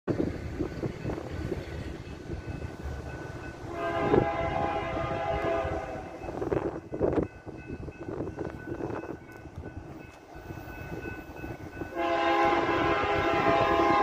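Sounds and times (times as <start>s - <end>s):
locomotive air horn blast: 3.6s - 6.2s, 11.9s - 14.0s.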